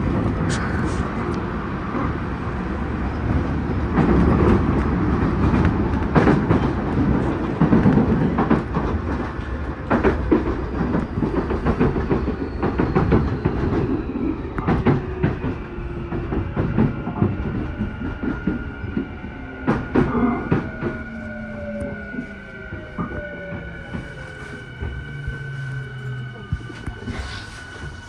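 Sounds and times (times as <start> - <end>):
train wheel and rail noise: 0.0 - 28.0.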